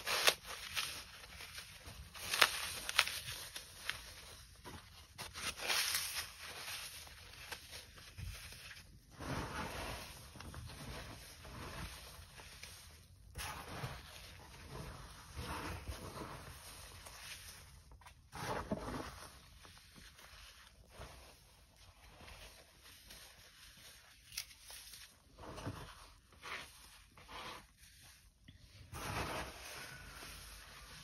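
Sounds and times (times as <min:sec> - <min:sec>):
floral foam being crushed: 0:00.0 - 0:31.0.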